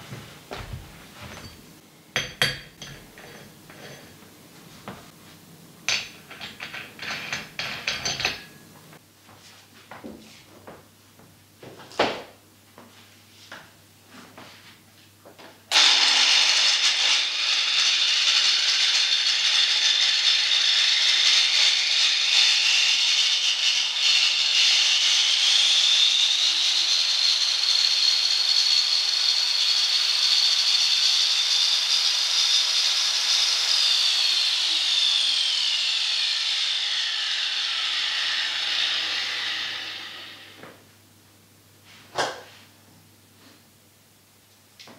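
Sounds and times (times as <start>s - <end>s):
electric power tool whining: 15.7s - 40.7s.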